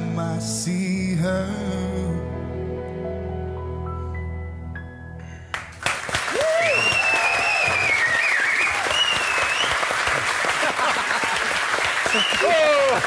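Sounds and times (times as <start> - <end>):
audience applause: 5.5 - 13.0
audience whooping and calling: 6.2 - 13.0.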